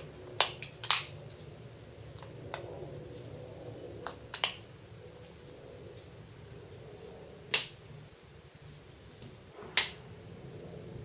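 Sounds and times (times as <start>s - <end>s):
plastic clips snapping into place: 0.4s - 1.1s.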